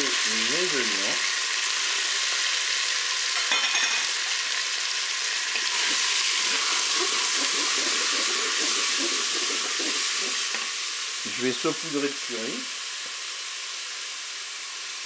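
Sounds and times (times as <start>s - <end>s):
chicken and onions sizzling in oil: 0.0s - 15.0s
wooden spoon scraping bowl: 5.6s - 10.7s.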